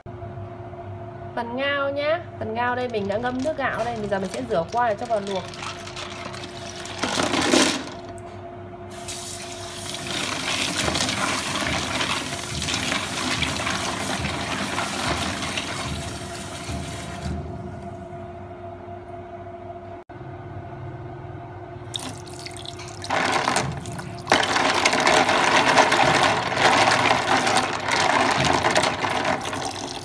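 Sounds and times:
tap water running: 3.2s - 8.1s, 9.0s - 17.4s, 21.9s - 30.0s.

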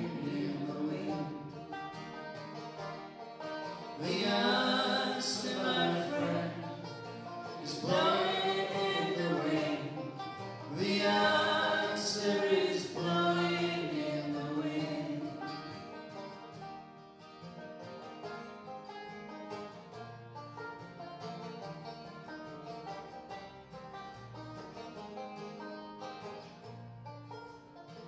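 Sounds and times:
person singing folk song: 0.0s - 16.5s
acoustic guitar: 0.0s - 28.0s
banjo: 0.0s - 28.0s.

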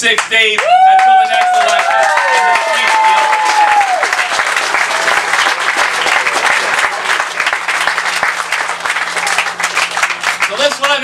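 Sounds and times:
crowd applauding: 0.1s - 11.0s.

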